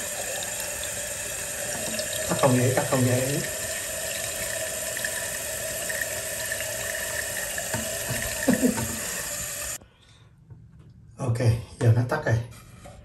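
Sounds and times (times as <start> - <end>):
toilet tank refilling hiss: 0.0 - 9.8.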